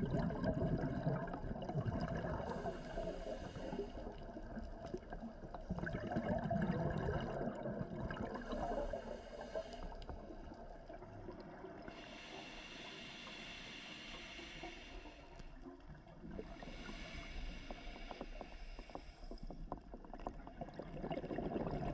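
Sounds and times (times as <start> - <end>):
underwater exhaled bubbles: 0.0 - 21.9
regulator inhale hiss: 2.5 - 4.4, 8.3 - 10.5, 11.9 - 15.6, 16.4 - 19.8.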